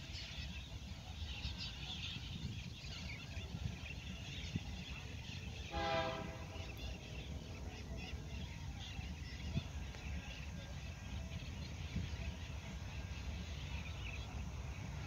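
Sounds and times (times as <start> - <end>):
faint bird chirping: 0.0 - 15.0
steady low rumble: 0.2 - 15.0
distant locomotive horn blast: 5.6 - 6.8.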